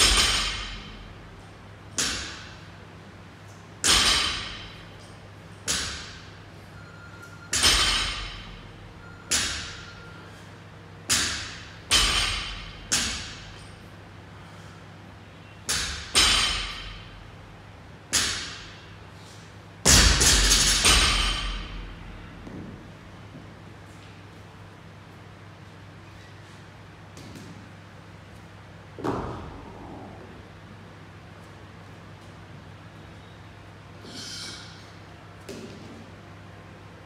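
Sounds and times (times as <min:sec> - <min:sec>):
barbells thudding on gym floor: 0:00.0 - 0:01.1, 0:11.1 - 0:13.6, 0:15.7 - 0:17.2, 0:19.9 - 0:22.9, 0:29.0 - 0:29.9.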